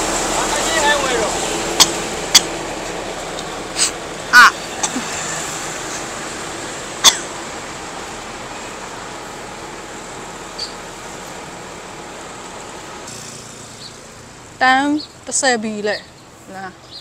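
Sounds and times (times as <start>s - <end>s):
traffic noise: 0.0s - 17.0s
person coughing: 7.0s - 7.3s.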